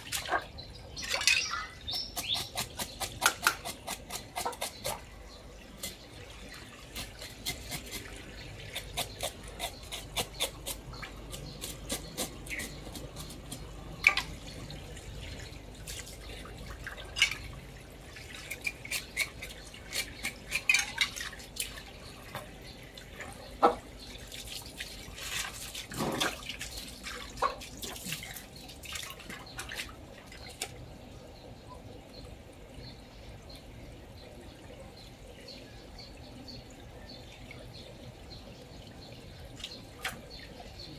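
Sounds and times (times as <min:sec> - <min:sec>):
water dripping: 0:00.0 - 0:40.9
knife cutting fish on wooden block: 0:08.7 - 0:13.7.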